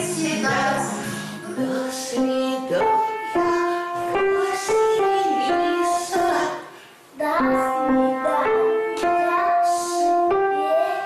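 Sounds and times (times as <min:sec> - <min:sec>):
piano playing slow melody: 0:07.3 - 0:11.0.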